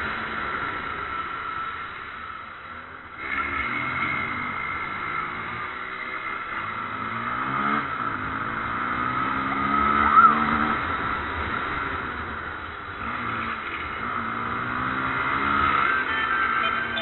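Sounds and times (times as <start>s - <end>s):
motorcycle engine accelerating: 3.1s - 17.0s
sharp tire chirp: 9.2s - 10.8s.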